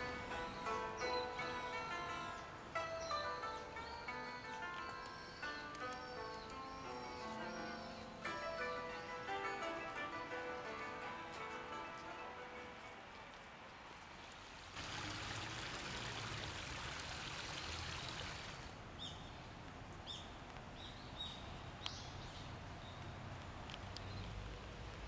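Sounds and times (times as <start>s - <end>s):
rain falling on a pond: 13.0s - 25.0s
bird chirping: 19.0s - 23.2s.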